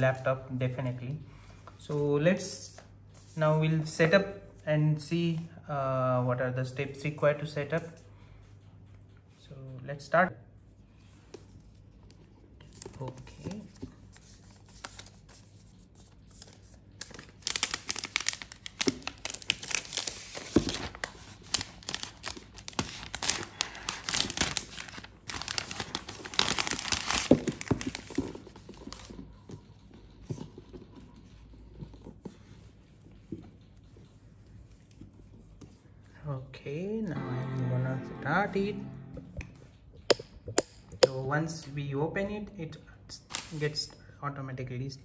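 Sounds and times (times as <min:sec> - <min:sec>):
plastic wrap crinkling: 0:16.1 - 0:29.4.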